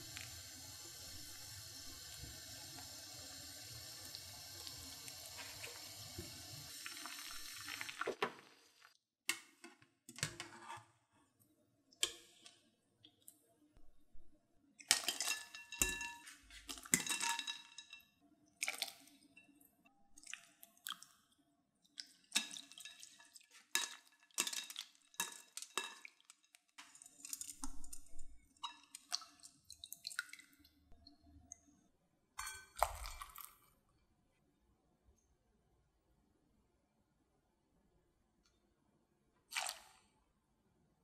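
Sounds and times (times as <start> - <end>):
pot boiling bubbling: 0.0 - 9.0
clinks against glass bowl: 15.2 - 16.3
water splashing and dripping: 22.0 - 30.7, 32.7 - 33.6, 39.5 - 40.0.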